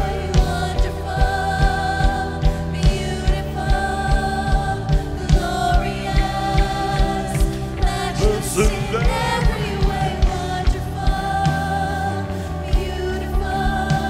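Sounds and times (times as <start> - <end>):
voices singing: 0.0 - 14.0
keyboard tones: 8.2 - 9.7.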